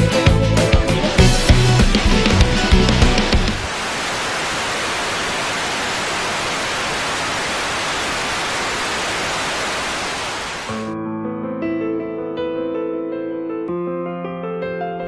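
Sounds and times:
old film static hiss: 0:01.2 - 0:11.0
soft electric piano music: 0:10.8 - 0:15.0.

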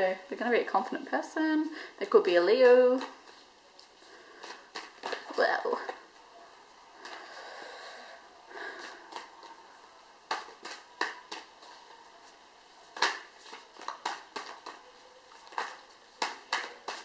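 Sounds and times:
cards snapping while shuffled: 0:04.4 - 0:05.3, 0:10.3 - 0:11.6, 0:12.9 - 0:14.8, 0:15.4 - 0:17.0.

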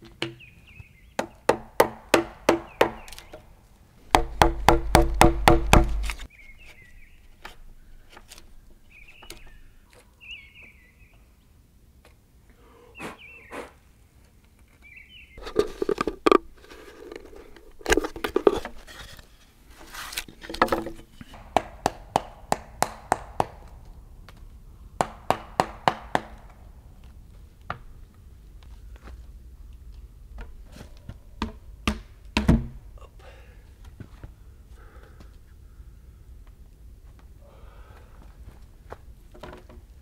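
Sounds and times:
sharp wooden knocks: 0:01.2 - 0:03.4, 0:04.1 - 0:06.3, 0:20.5 - 0:24.0, 0:25.0 - 0:26.7, 0:31.4 - 0:32.8
scraping on wood: 0:15.4 - 0:22.0.

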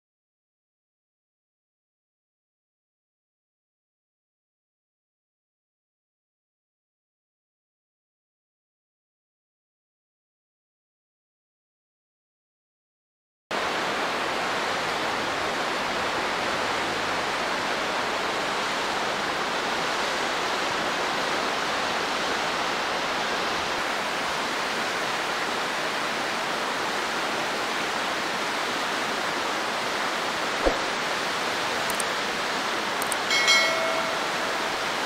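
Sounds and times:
rushing flowing water: 0:13.6 - 0:35.0
short knock: 0:30.6 - 0:30.9.

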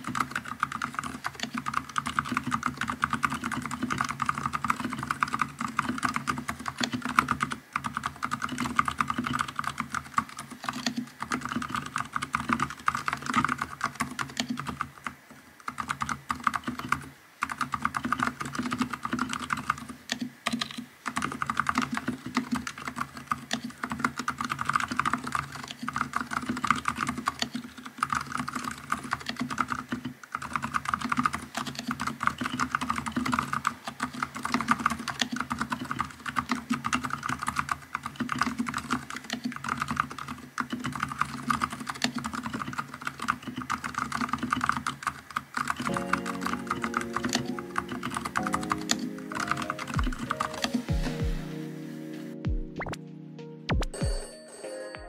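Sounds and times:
soft mechanical keyboard typing: 0:00.0 - 0:51.4.

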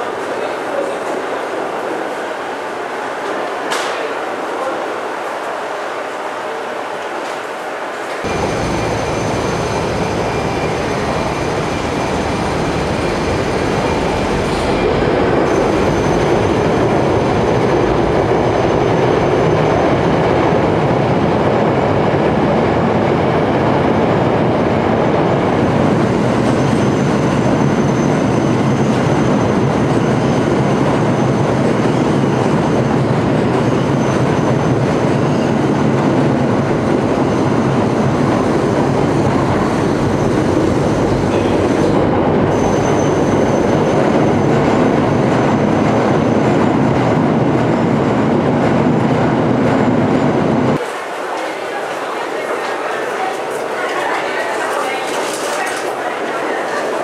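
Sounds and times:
wheels rumbling on rails: 0:08.2 - 0:56.9
high wheel squeal: 0:08.3 - 0:17.8, 0:38.9 - 0:44.6.

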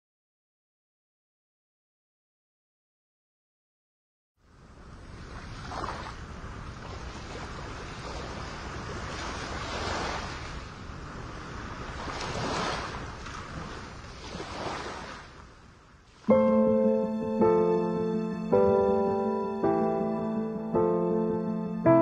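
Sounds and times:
wind: 0:04.4 - 0:21.9
sea surf washing ashore: 0:04.4 - 0:22.0.

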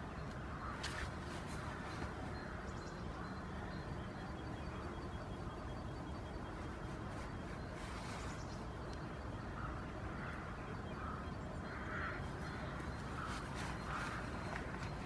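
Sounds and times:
low background noise: 0:00.0 - 0:15.0
crow cawing: 0:09.5 - 0:14.6.

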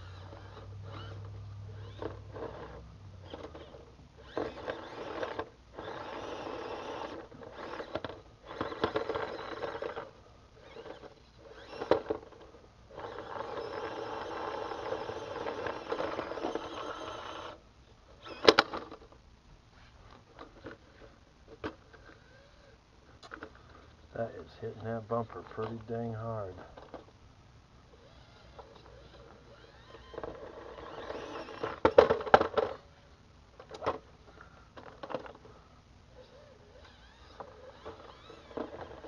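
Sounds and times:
small electric motor whirring: 0:00.0 - 0:17.6, 0:18.2 - 0:19.0, 0:21.9 - 0:22.8, 0:27.9 - 0:32.8, 0:36.1 - 0:39.0.

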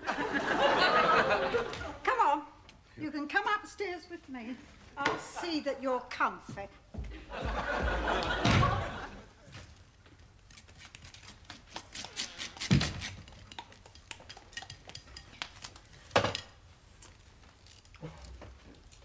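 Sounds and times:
cutlery clinking on plates: 0:13.5 - 0:15.6.

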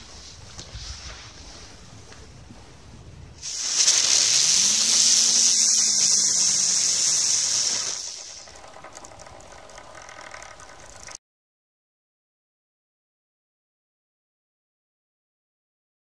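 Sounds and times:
firework spinner hissing: 0:03.4 - 0:11.2.

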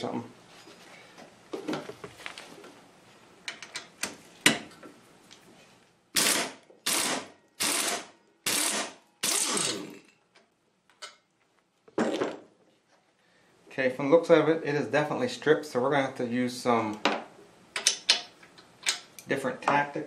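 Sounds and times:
pneumatic impact wrench bursts: 0:06.2 - 0:10.1.

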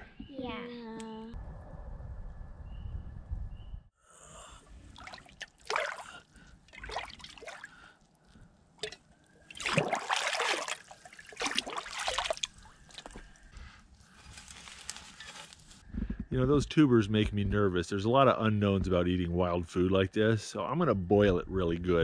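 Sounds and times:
water sloshing and splashing: 0:04.9 - 0:13.3.

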